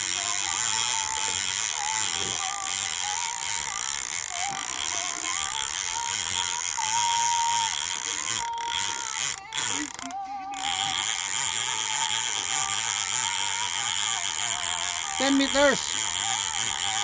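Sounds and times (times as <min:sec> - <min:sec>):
fishing reel ratcheting: 0:00.0 - 0:17.0.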